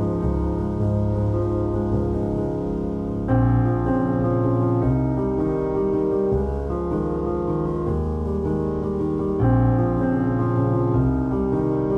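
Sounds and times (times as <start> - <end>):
slow piano chords: 0.0 - 11.9.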